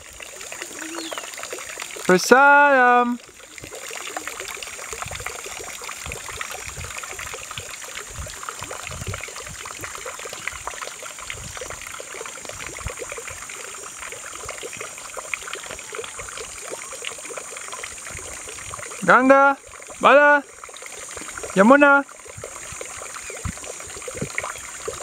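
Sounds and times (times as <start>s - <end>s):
crackling trickling noise: 0.0s - 25.0s
wind on microphone: 4.9s - 13.5s, 18.0s - 18.9s, 22.3s - 25.0s.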